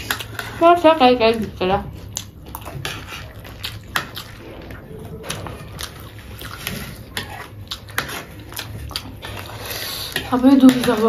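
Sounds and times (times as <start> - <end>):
spoons scraping paper plates: 0.0 - 1.9, 4.3 - 11.0
people chewing: 0.0 - 11.0.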